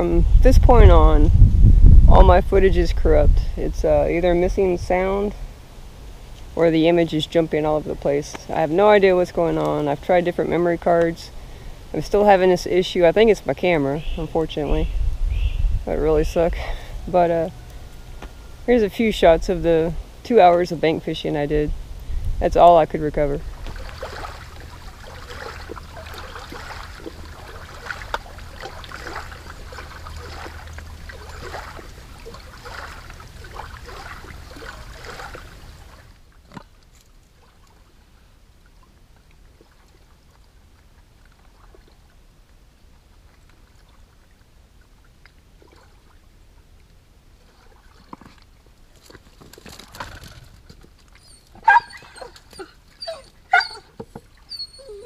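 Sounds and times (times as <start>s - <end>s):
dog whining: 51.2s - 55.0s
dog yelping: 51.2s - 55.0s.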